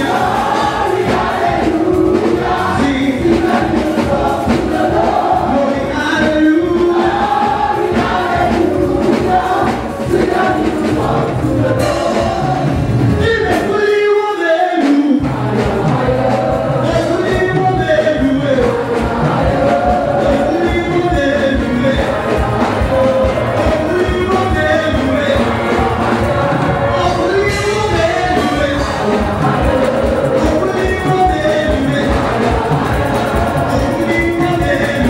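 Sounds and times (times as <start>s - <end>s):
congregation singing gospel music: 0.0s - 35.0s
instrumental accompaniment: 0.0s - 35.0s.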